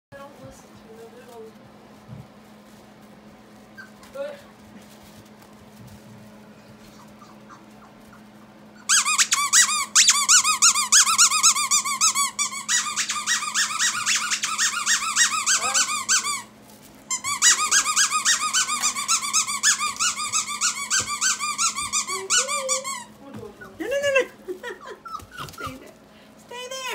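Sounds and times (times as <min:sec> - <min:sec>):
puppy whimpering: 0:03.7 - 0:04.4, 0:06.7 - 0:16.5, 0:17.2 - 0:26.0
squeaky dog toy squeaking: 0:08.8 - 0:16.5, 0:17.1 - 0:23.8.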